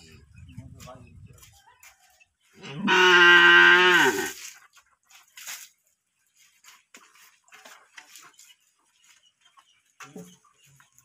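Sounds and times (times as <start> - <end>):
cow mooing: 2.7 - 4.3.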